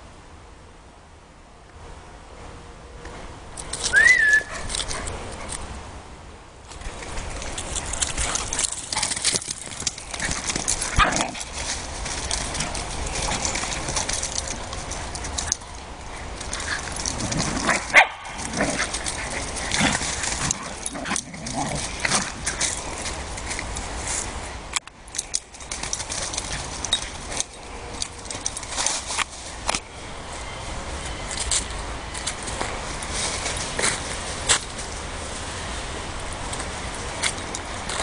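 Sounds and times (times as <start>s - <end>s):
steady rustle: 3.0s - 38.0s
dogs barking and yipping: 3.9s - 5.6s, 7.3s - 23.4s.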